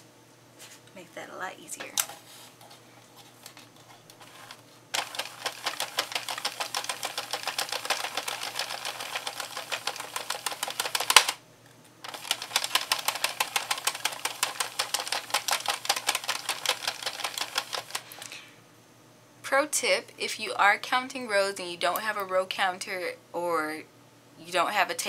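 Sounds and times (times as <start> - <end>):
loud plastic clack: 5.0 - 11.4.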